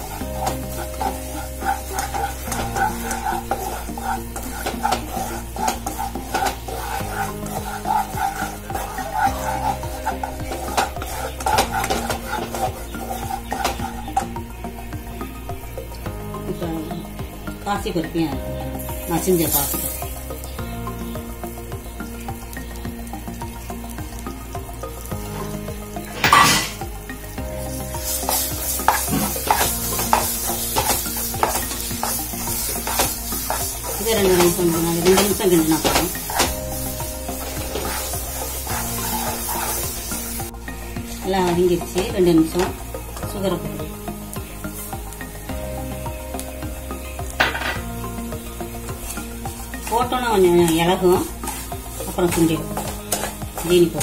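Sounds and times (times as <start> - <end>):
spatula scraping pan: 0.0 - 14.4, 25.3 - 26.8, 27.6 - 43.6, 48.9 - 54.0
ghee sizzling: 0.0 - 54.0.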